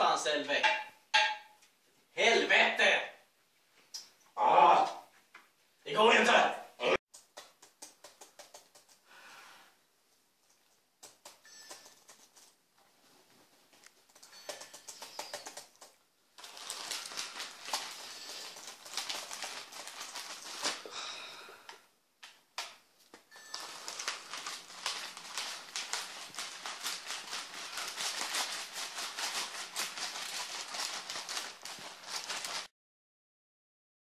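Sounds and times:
papers fluttering and rattling: 14.0 - 20.9, 23.4 - 32.7.

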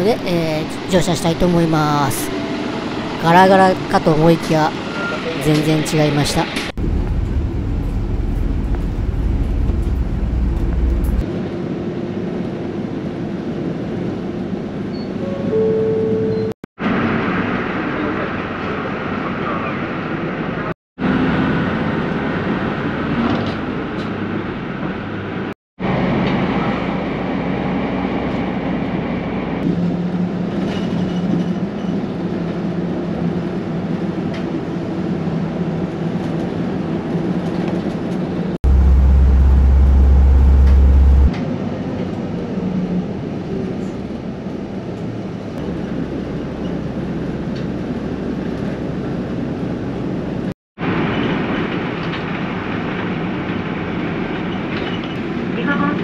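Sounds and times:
road noise: 2.3 - 11.3, 38.6 - 41.5
bus engine drone: 2.3 - 14.9, 38.6 - 51.3
deep low rumble: 6.8 - 11.3, 38.6 - 41.3.

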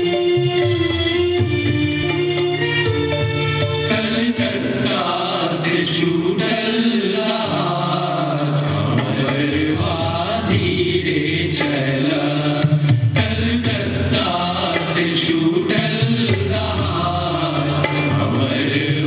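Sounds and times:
low steady accompaniment: 0.0 - 19.0
men singing chant-like: 3.9 - 19.0.

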